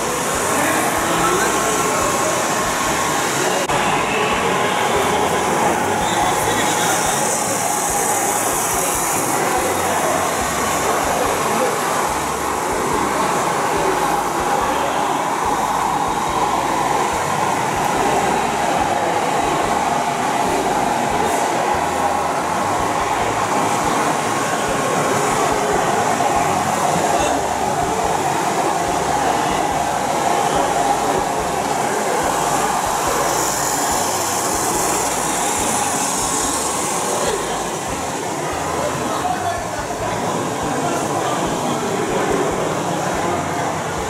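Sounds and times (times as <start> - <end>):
model train running on track: 0.0 - 44.0.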